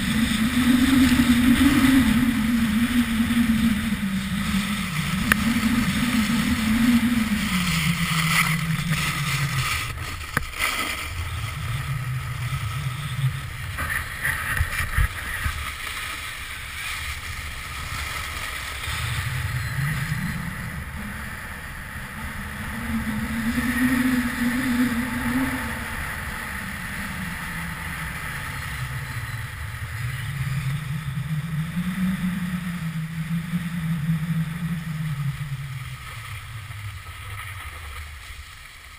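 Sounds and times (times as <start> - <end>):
wind rushing: 0.0 - 10.3, 17.1 - 36.0
low hum: 0.0 - 38.9
snowboard scraping over snow: 0.0 - 38.9.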